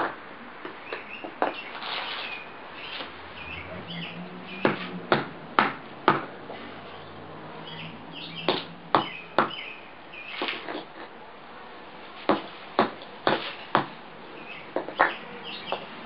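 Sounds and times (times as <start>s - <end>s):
hard object striking golf ball: 4.6s - 6.4s.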